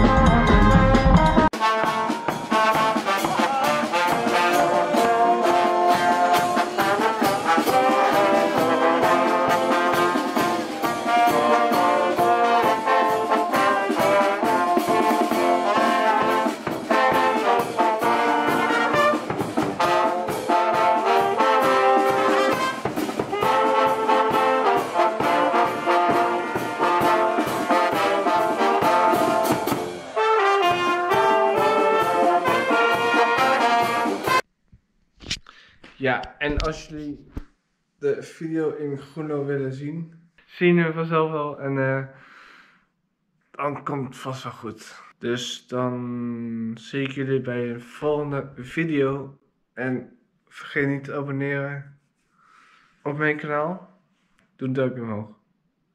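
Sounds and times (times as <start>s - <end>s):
brass band playing: 0.0s - 34.4s
drums beating: 0.0s - 34.4s.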